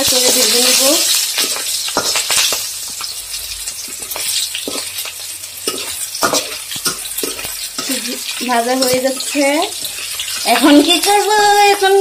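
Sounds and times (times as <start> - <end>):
spices sizzling in hot oil: 0.0 - 12.0
metal spoon scraping pan: 0.3 - 11.2.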